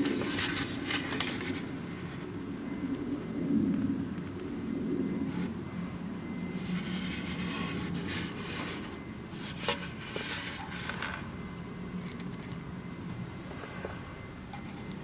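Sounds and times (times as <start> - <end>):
plastic bottle rubbing and scraping: 6.6 - 11.3.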